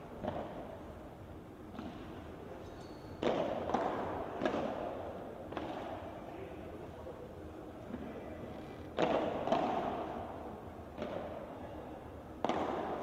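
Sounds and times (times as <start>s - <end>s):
padel ball hit by rackets: 3.2s - 6.0s, 9.0s - 10.1s, 10.9s - 11.4s, 12.4s - 13.0s.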